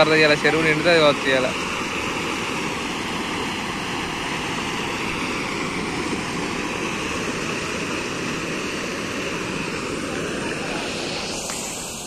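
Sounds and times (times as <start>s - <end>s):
floodwater rushing over a drop: 0.0s - 12.0s.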